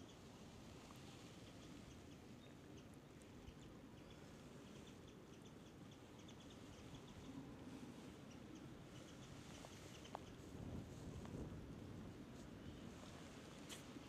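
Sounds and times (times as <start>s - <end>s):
small birds chirping: 1.4s - 7.3s, 8.2s - 10.5s.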